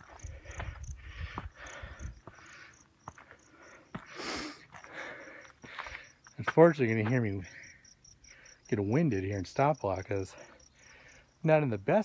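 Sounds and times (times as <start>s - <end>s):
person breathing hard: 0.0s - 6.2s, 7.5s - 8.7s, 10.3s - 11.4s
footsteps: 0.0s - 7.4s
insects chirping: 0.0s - 12.0s.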